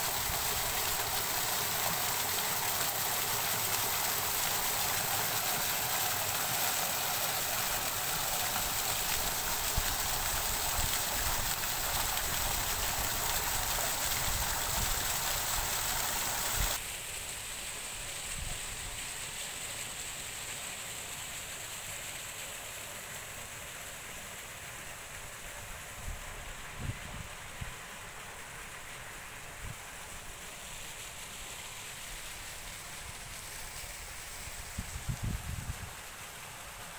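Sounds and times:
fountain splashing into basin: 0:00.0 - 0:25.4
wind on microphone: 0:34.7 - 0:36.0.

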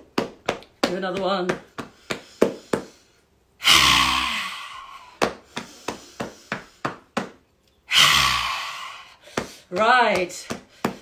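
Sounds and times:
forceful voiced out-breath: 0:03.6 - 0:05.2, 0:07.9 - 0:09.6
fists drumming on chest: 0:05.2 - 0:07.4, 0:09.3 - 0:11.0.

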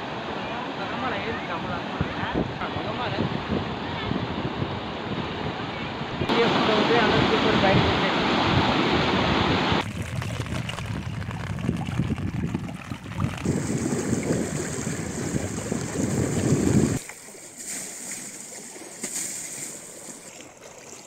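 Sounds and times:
wind rumble on microphone: 0:01.9 - 0:17.0
floodwater rushing: 0:06.3 - 0:21.0.

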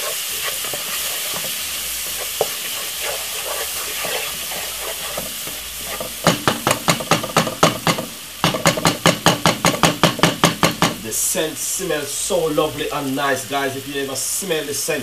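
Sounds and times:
utensil scraping and knocking pot: 0:00.0 - 0:11.0
food sizzling in a hot pot: 0:00.0 - 0:15.0.

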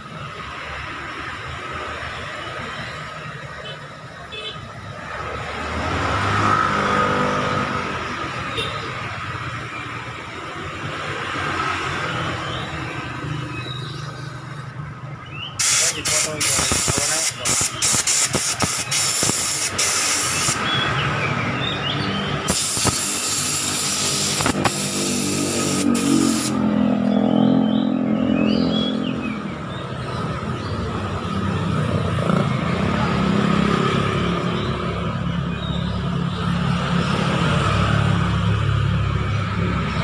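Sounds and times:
compressed air hissing: 0:15.6 - 0:20.7, 0:22.4 - 0:26.6
vehicle engine drone: 0:22.4 - 0:29.6.

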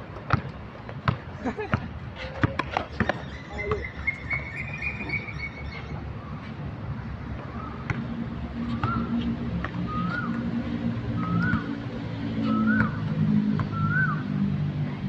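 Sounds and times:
traffic engine hum: 0:00.0 - 0:15.0
birds chirping: 0:02.9 - 0:06.5.

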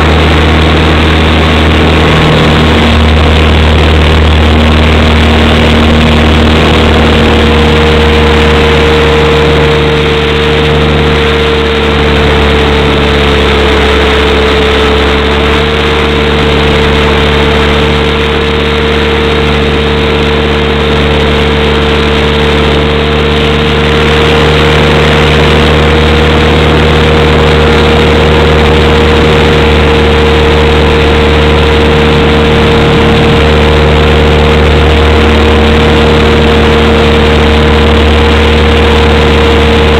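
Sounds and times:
electric motors whining: 0:00.0 - 0:39.9
rushing noise: 0:00.0 - 0:39.9.

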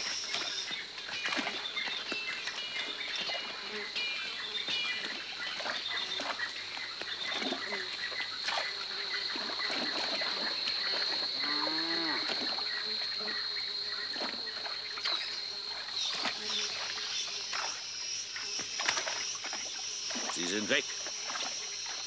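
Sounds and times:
water splashing: 0:09.3 - 0:11.4, 0:14.1 - 0:22.0
water buffalo lowing: 0:11.3 - 0:12.6.

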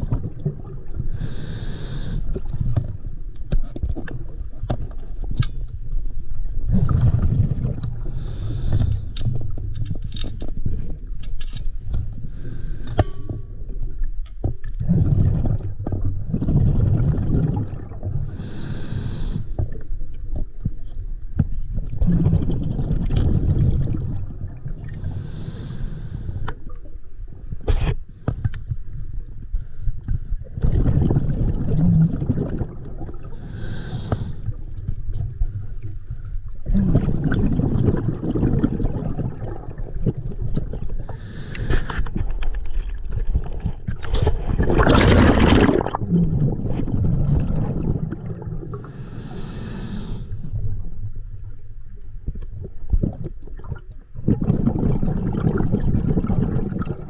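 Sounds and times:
diver breathing through regulator: 0:01.1 - 0:02.5, 0:08.0 - 0:09.3, 0:12.2 - 0:13.4, 0:18.2 - 0:19.7, 0:24.9 - 0:26.5, 0:33.3 - 0:34.6, 0:41.0 - 0:42.2, 0:48.7 - 0:50.6.

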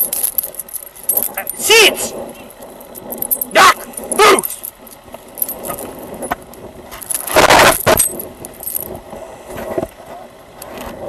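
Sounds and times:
small metal pieces jingling: 0:00.0 - 0:01.7, 0:02.5 - 0:08.9.

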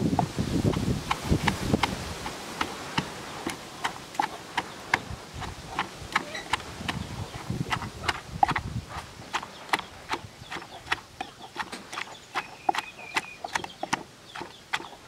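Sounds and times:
wooden pestle pounding in mortar: 0:00.1 - 0:15.0.

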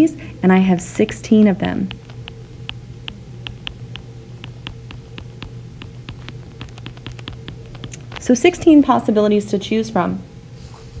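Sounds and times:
steady low hum: 0:00.0 - 0:11.0
stylus ticking on glass screen: 0:01.9 - 0:08.0.

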